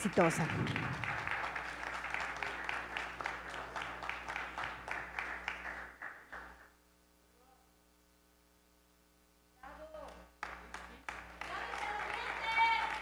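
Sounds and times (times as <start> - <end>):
applause: 0.0 - 6.8, 10.0 - 13.0.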